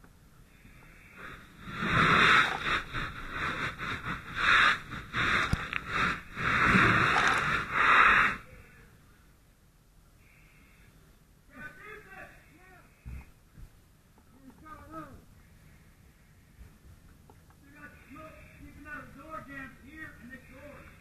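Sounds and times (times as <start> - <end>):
fire hose spraying: 0.8 - 8.5.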